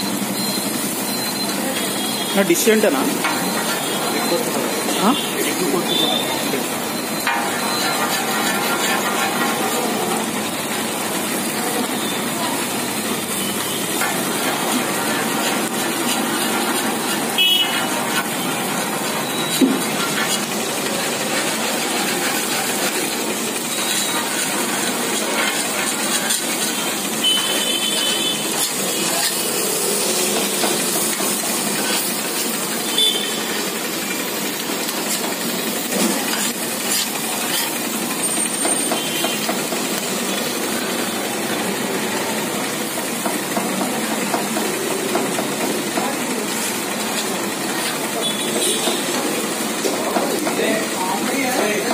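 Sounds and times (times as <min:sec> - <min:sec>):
food sizzling on a griddle: 0:00.0 - 0:51.9
metal spatula scraping griddle: 0:03.1 - 0:06.1, 0:06.9 - 0:12.1, 0:13.3 - 0:39.4
spatula clinking on griddle: 0:07.0 - 0:09.8.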